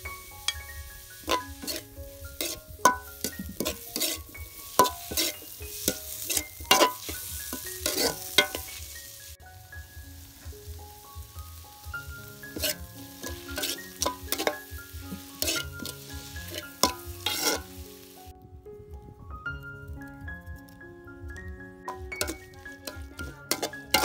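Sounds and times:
food sizzling in a pan: 0.0 - 18.3, 21.8 - 24.0
spoon stirring and scraping pan: 0.1 - 9.2, 12.4 - 18.1, 21.9 - 24.0
spoon knocking against pan: 1.3 - 1.8, 2.4 - 4.2, 4.8 - 8.8, 12.6 - 17.6, 21.9 - 24.0.

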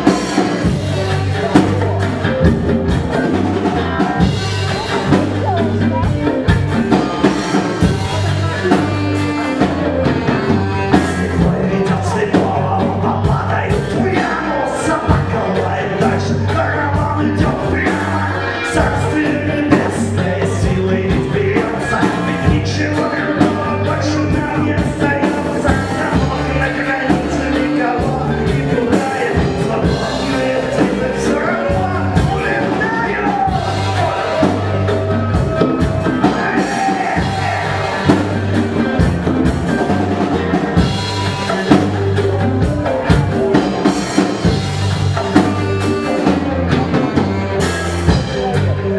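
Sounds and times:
saxophone: 0.0 - 20.4, 21.6 - 48.9
bass line: 0.0 - 48.9
drum kit and congas beat: 0.0 - 48.9
electric guitars: 0.0 - 48.9
lead singer singing: 0.0 - 48.9.

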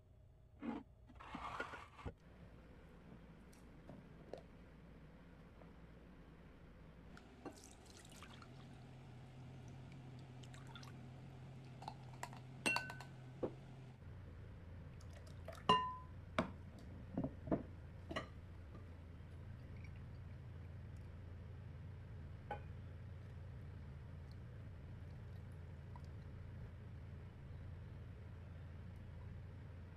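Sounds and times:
brine pouring into bowl: 7.4 - 8.7
glass jars clinking: 11.8 - 13.2, 15.7 - 16.1.

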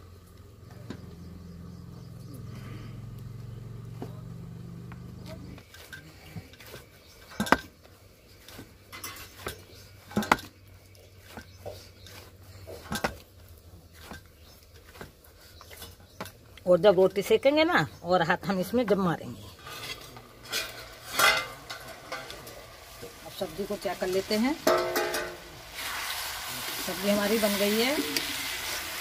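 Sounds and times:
hands kneading dough: 5.6 - 17.3.

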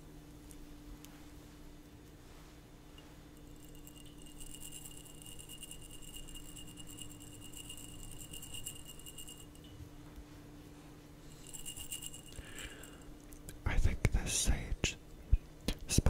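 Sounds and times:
glass jar ringing: 3.0 - 9.8, 11.3 - 13.1.

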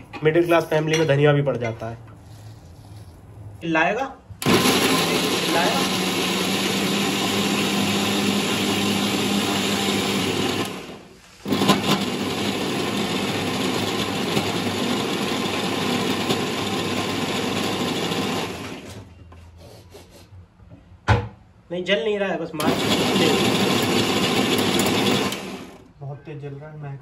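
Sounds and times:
electric mixer grinder running: 4.4 - 19.1, 22.6 - 25.9.

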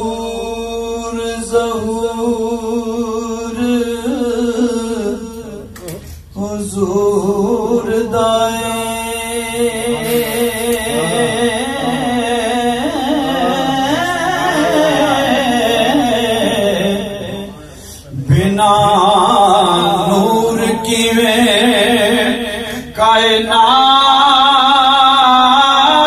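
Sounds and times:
steady low held tone: 0.0 - 25.6
man singing devotional song: 0.0 - 26.0.

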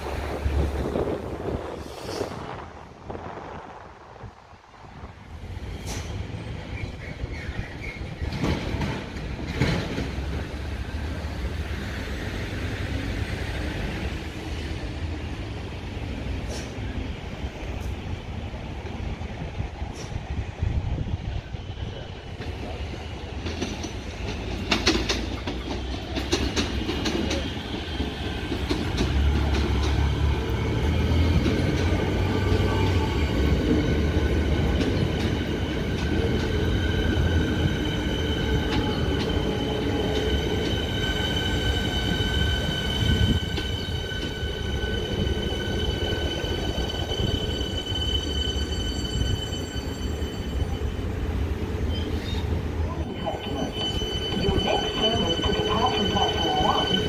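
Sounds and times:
train low rumble: 0.0 - 57.0
high-pitched train whine: 21.0 - 57.0
train wheel clicks over rail joints: 23.4 - 27.6.

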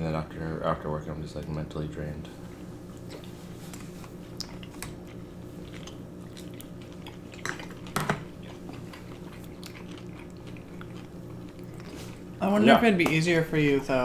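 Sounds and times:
steady low hum: 0.0 - 14.0
wet chewing: 2.5 - 12.4.

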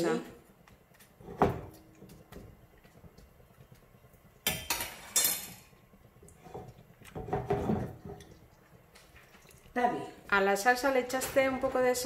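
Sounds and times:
spoon clattering on stone counter: 4.4 - 5.8.

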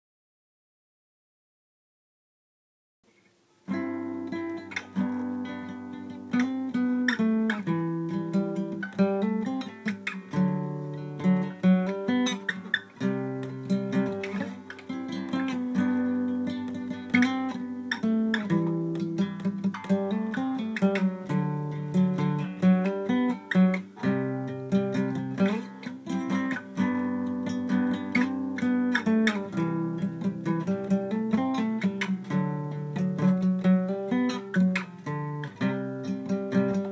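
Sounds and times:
acoustic guitar picked by hand: 3.1 - 36.9.

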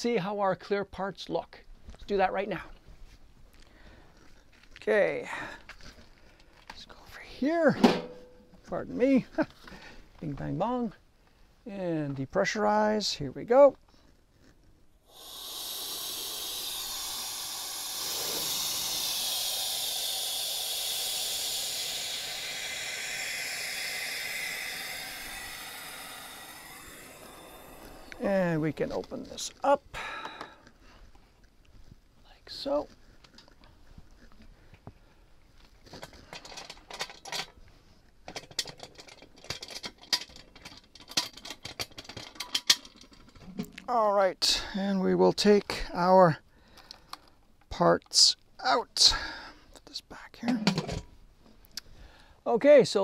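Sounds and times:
compressed air hissing from valve: 15.0 - 28.8
metal clamps clicking and rattling: 38.3 - 43.5.

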